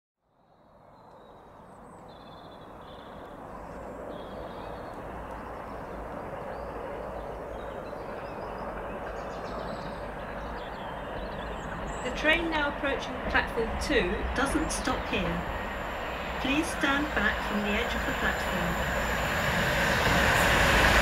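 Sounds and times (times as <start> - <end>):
birds chirping: 1.0 - 21.0
rail noise: 2.5 - 21.0
diesel locomotive rumble: 8.7 - 21.0.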